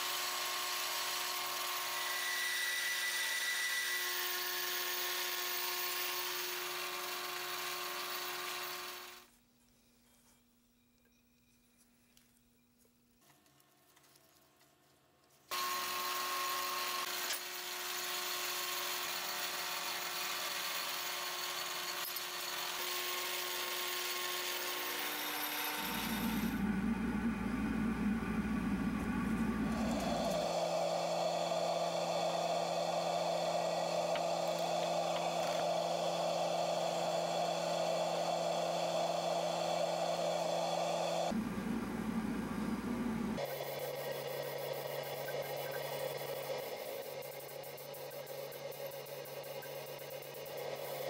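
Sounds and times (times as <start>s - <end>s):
metal lathe running: 15.8s - 51.0s.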